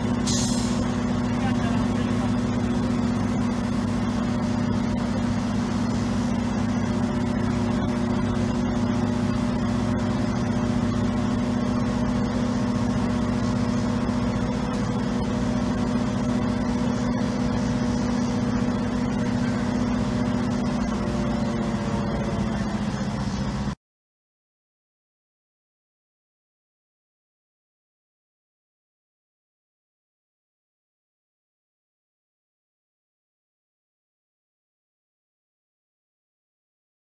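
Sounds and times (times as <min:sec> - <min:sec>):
diesel engine running steadily: 0:00.0 - 0:23.8.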